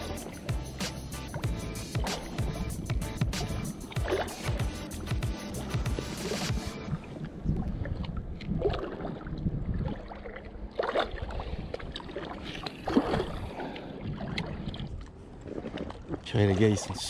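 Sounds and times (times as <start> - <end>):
small waves lapping: 0.0 - 17.0
wind buffeting microphone: 6.8 - 10.3, 11.0 - 15.5.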